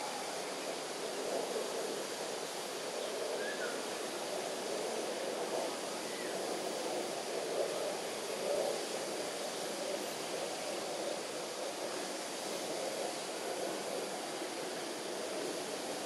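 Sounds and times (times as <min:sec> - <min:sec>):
low rushing outdoor hiss: 0:00.0 - 0:16.0.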